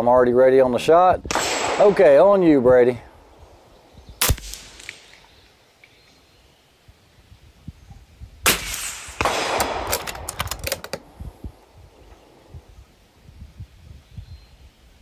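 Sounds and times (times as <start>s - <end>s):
air rifle shot: 1.3s - 2.6s, 4.2s - 5.2s, 8.4s - 10.4s
clicking and rustling handling noise: 9.8s - 11.1s.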